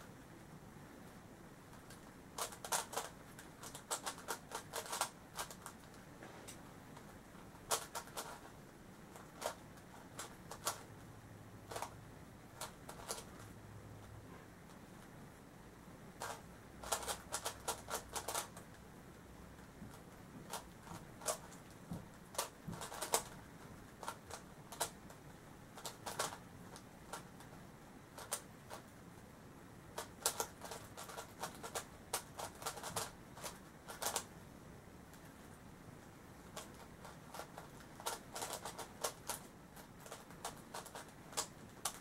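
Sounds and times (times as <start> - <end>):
plastic puzzle clicking when turned: 1.9 - 6.0, 7.7 - 8.4, 12.6 - 13.3, 25.8 - 27.3.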